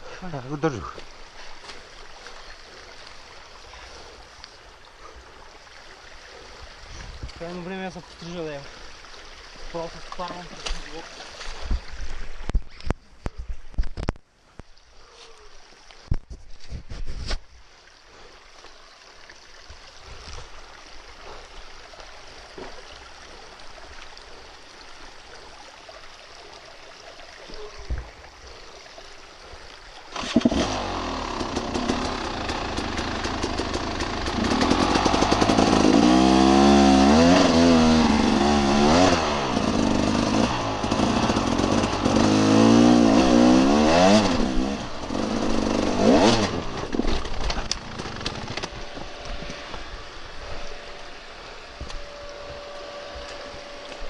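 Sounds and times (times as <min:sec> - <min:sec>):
dirt bike engine revving: 0:30.1 - 0:49.7.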